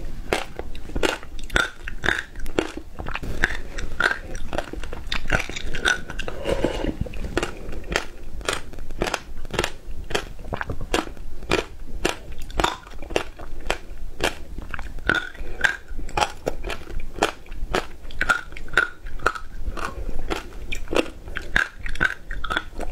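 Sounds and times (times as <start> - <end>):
chewing and crunching ice: 0.3 - 22.9.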